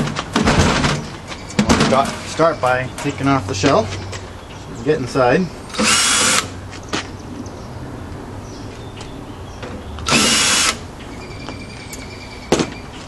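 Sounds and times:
cordless drill whirr: 5.7 - 6.5, 10.1 - 10.8.

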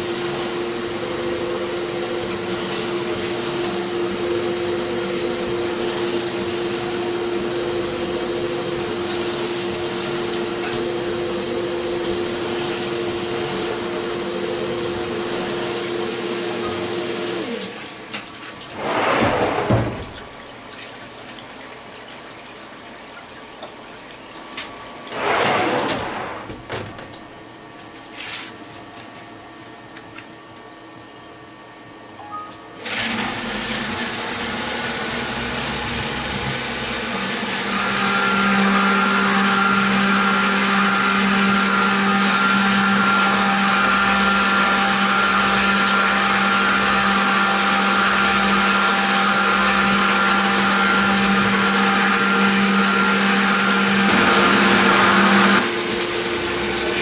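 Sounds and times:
spindle humming: 0.0 - 17.6, 34.4 - 57.0
short whooshes: 18.7 - 20.0
coolant hissing and splashing: 32.9 - 57.0.

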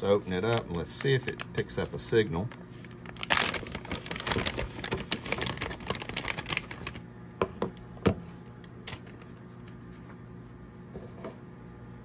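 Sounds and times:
foil bag crinkling open: 0.3 - 7.1.

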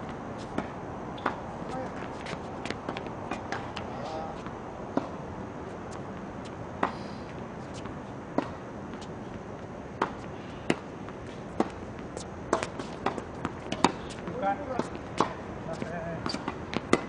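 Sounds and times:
tennis ball bouncing on court: 0.1 - 3.9, 7.7 - 9.1, 10.0 - 17.0
tennis ball struck by racket: 12.5 - 14.1, 14.8 - 15.4, 16.2 - 17.0.

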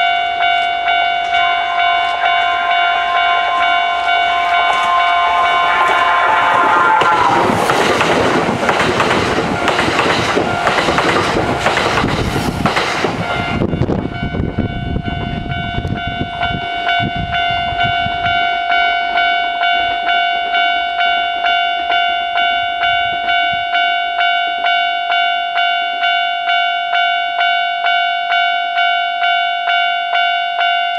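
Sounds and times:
level-crossing warning bell: 0.0 - 12.1, 13.0 - 30.9
train wheels clattering: 0.6 - 14.0.

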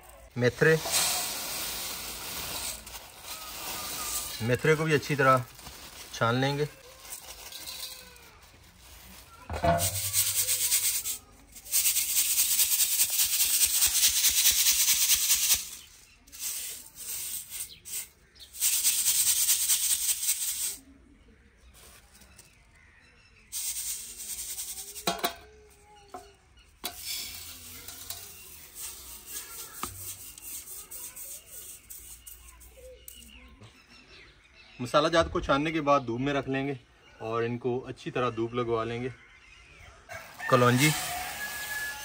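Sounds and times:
seeds rattling in a sieve: 0.0 - 20.8, 23.4 - 33.4, 40.1 - 42.0.

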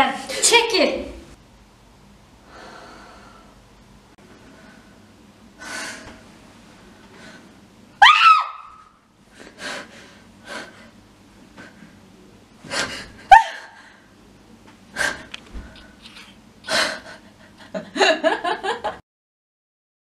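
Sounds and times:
heavy breaths: 2.4 - 3.6, 14.9 - 16.0.

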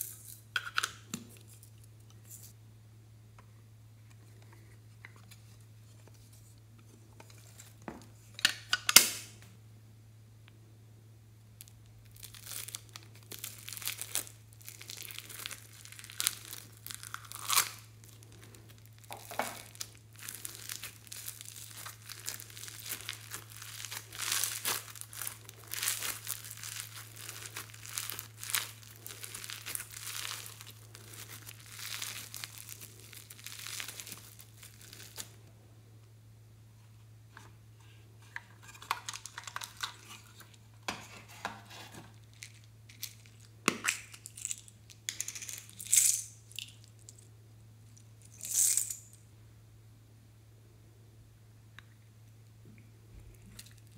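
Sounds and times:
foam beads crackling in slime: 11.6 - 35.4, 42.1 - 47.2, 48.2 - 49.2.

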